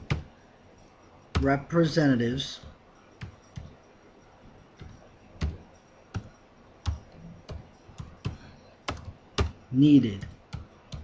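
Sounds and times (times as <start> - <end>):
keyboard keys clicking: 2.6 - 3.8, 4.7 - 11.0.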